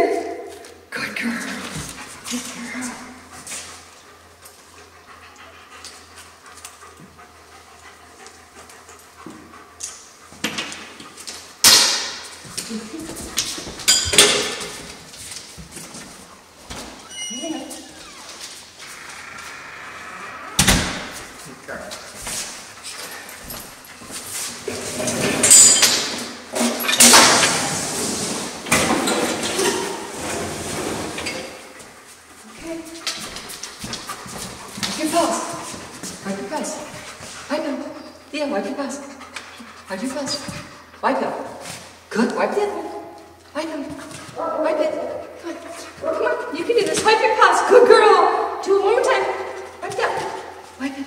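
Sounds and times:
dogs panting: 1.4s - 13.9s, 20.8s - 24.7s, 31.5s - 47.7s
sudden loud noise: 18.8s - 21.7s.

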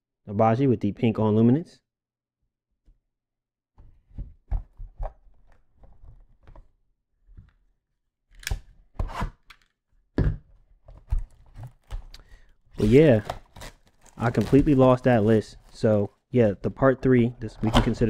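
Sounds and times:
wrapper tearing and crinkling: 12.8s - 15.8s.

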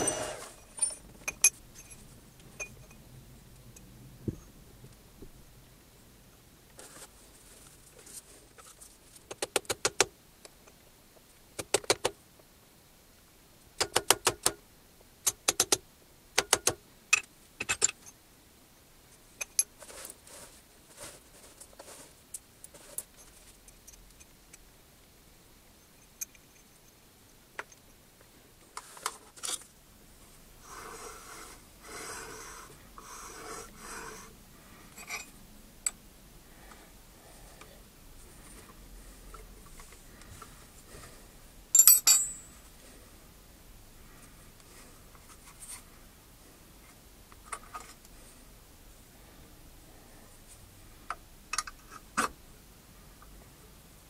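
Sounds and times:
tools rummaged clattering: 0.0s - 2.0s
metal tools clinking: 0.0s - 3.0s, 41.7s - 42.6s.

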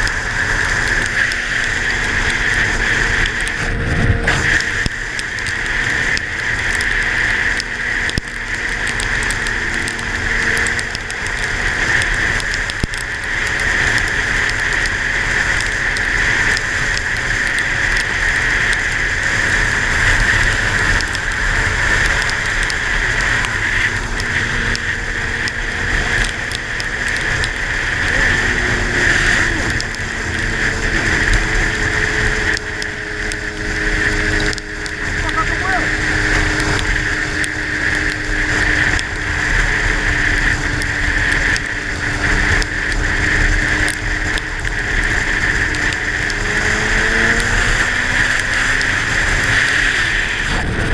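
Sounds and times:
raindrops tapping microphone: 0.0s - 50.9s
tyres on wet road: 0.0s - 50.9s
wind noise: 0.0s - 50.9s.

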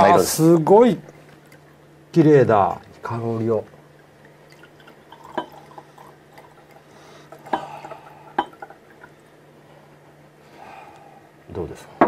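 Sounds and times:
champagne pouring into glass: 4.5s - 8.7s
glass clinking: 4.5s - 9.2s.

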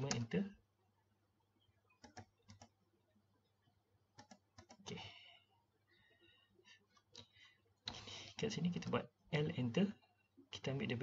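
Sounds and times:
mouse clicks: 1.9s - 2.8s, 4.2s - 4.8s
keyboard keystrokes: 2.0s - 2.7s, 4.2s - 4.8s.

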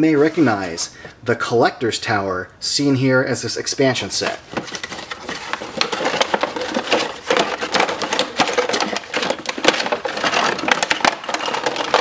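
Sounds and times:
cardboard box rustling and scraping: 4.2s - 12.0s
plastic packaging crackling: 4.2s - 12.0s.

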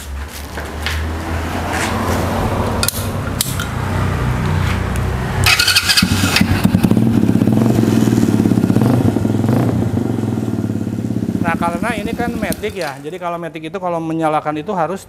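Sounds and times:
motorbike engine starting and running: 1.6s - 13.1s.

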